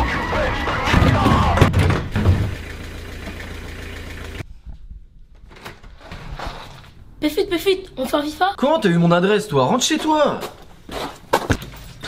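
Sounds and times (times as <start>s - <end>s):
van engine idling: 0.6s - 4.5s
knocks: 0.9s - 2.6s.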